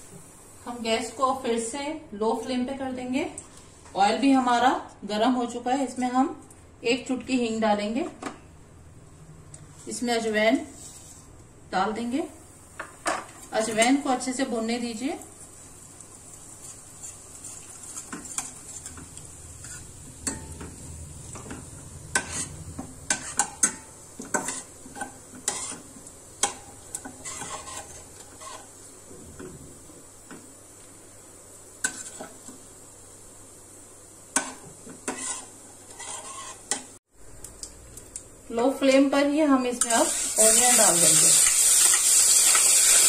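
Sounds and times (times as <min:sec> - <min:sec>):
oil sizzling: 0:12.4 - 0:38.5, 0:39.1 - 0:43.0
spoon scraping metal pan: 0:16.6 - 0:20.6, 0:22.1 - 0:28.7, 0:34.4 - 0:36.9.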